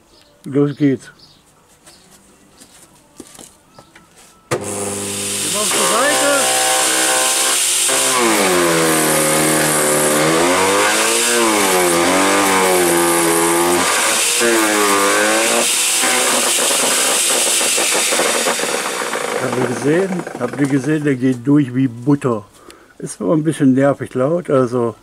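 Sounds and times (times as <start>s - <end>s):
shredder motor whine: 4.5s - 20.8s
wood cracking: 4.5s - 21.3s.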